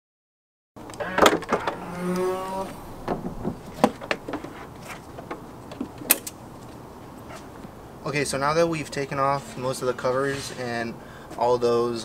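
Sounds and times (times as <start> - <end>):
trunk lid groan: 1.0 - 4.3.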